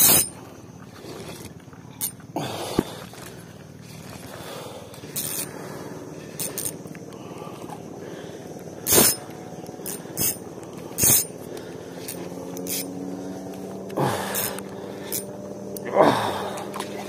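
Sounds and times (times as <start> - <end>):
fishing reel cranking: 0.0 - 0.4, 4.9 - 5.6, 6.2 - 7.0, 8.8 - 13.6, 14.3 - 17.0.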